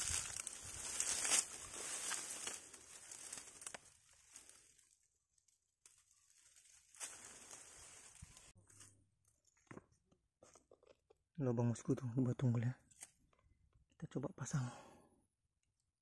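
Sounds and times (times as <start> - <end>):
grass rustling underfoot: 0.0 - 5.0, 5.8 - 8.6.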